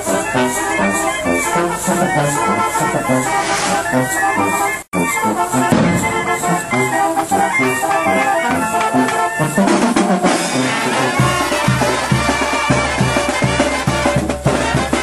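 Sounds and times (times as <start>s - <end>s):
marching brass band playing: 0.0s - 15.0s
snare and bass drum beat: 5.5s - 15.0s.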